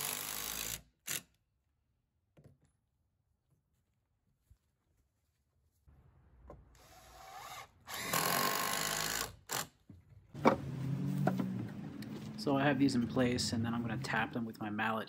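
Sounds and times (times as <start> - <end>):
cordless drill boring into wood: 0.0 - 1.3, 6.8 - 9.7.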